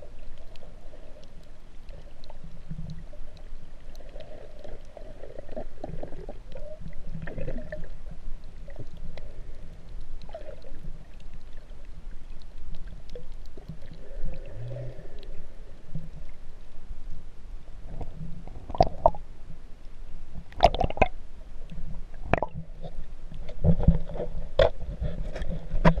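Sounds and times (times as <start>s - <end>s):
water and bubbles popping: 5.3s - 8.0s, 10.3s - 10.8s, 18.0s - 19.2s, 20.5s - 21.2s, 22.2s - 22.7s
snorkel breathing underwater: 13.8s - 15.9s.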